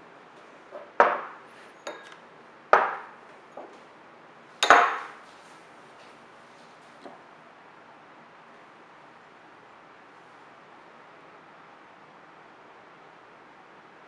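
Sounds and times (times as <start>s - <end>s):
ceramic bowls clacking on wood: 0.7s - 2.2s, 4.6s - 5.2s.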